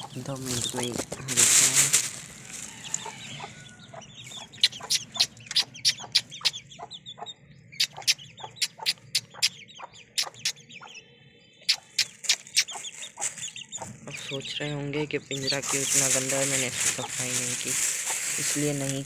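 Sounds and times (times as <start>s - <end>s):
chickens pecking grain: 0.0s - 6.7s, 11.7s - 14.5s, 15.3s - 19.0s.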